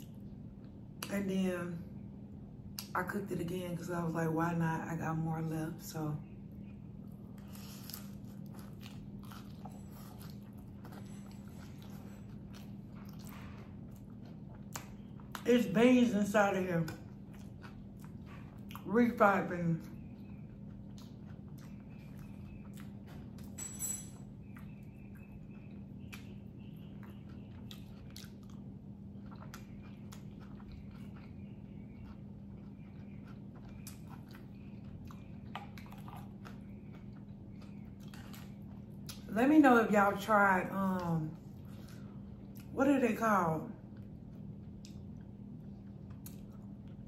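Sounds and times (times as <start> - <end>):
steady low hum: 0.0 - 47.0
crunchy chewing: 6.5 - 16.1, 16.8 - 19.2, 19.8 - 23.6, 24.2 - 39.3, 40.9 - 42.7, 43.8 - 47.0.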